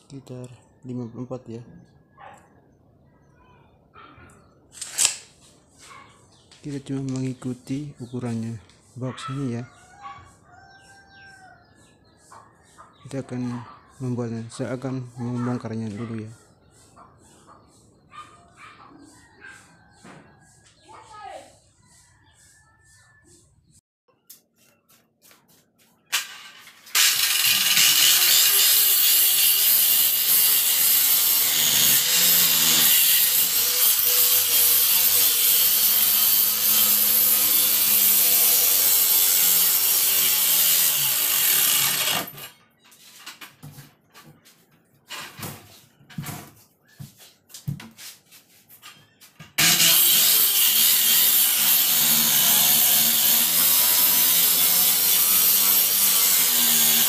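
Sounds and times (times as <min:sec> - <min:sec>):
circular saw cutting wood: 0:26.1 - 0:42.6, 0:49.5 - 0:57.0.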